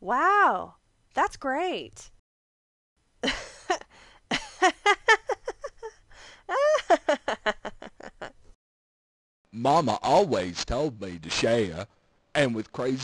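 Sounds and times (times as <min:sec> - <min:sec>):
person laughing: 0:03.2 - 0:08.6.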